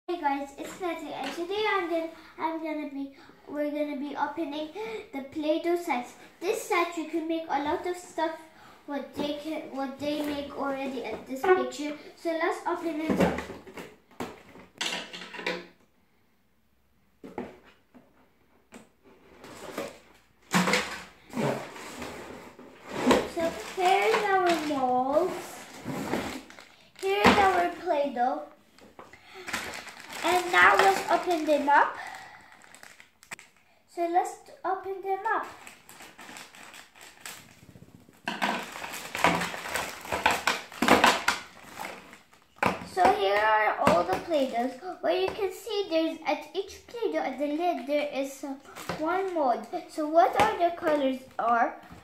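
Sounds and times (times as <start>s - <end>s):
plastic wrapping rustling: 19.1s - 33.7s, 35.1s - 45.4s, 48.6s - 51.0s
plastic packaging crinkling: 22.9s - 28.0s, 28.7s - 33.7s, 35.2s - 43.4s, 44.0s - 44.9s, 48.7s - 49.4s.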